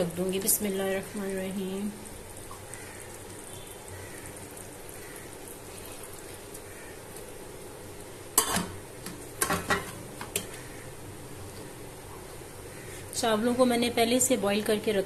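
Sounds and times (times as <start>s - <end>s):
faint steady hiss: 0.0s - 15.0s
metal spoon scraping metal pots: 8.4s - 8.8s, 9.4s - 10.6s.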